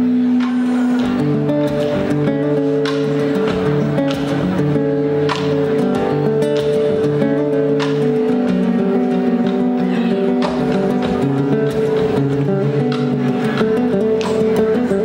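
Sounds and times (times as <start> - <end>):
acoustic guitar strumming chords: 0.0 - 15.0
drum kit: 0.4 - 9.6, 10.3 - 15.0.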